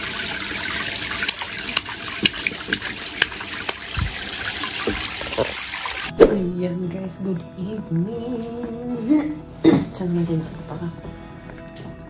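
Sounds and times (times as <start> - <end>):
bathwater trickling and splashing: 0.0 - 6.1
water dripping: 0.0 - 6.1.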